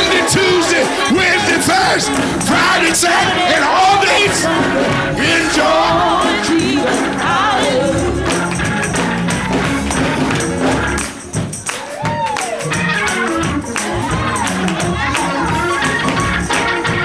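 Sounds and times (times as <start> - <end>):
man singing into microphone: 0.0 - 8.2
voices singing: 0.0 - 11.0, 12.4 - 17.0
live gospel music: 0.0 - 17.0
tambourine shaken: 0.0 - 17.0.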